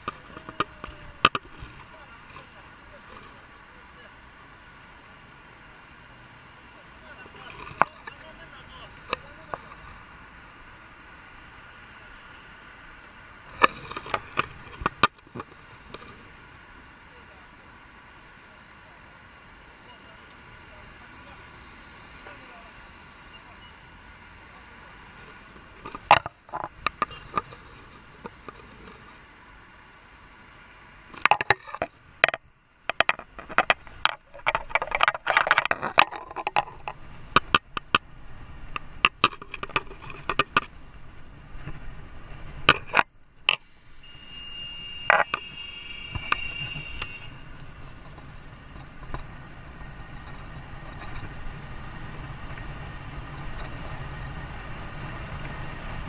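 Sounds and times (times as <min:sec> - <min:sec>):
sharp clicks knocks and scrapes: 0:00.0 - 0:03.4, 0:07.2 - 0:08.4, 0:09.0 - 0:10.0, 0:13.5 - 0:16.4, 0:25.2 - 0:29.2, 0:31.1 - 0:38.1, 0:38.7 - 0:41.9, 0:42.6 - 0:43.7, 0:45.1 - 0:51.4
vehicle engine running: 0:00.0 - 0:56.0.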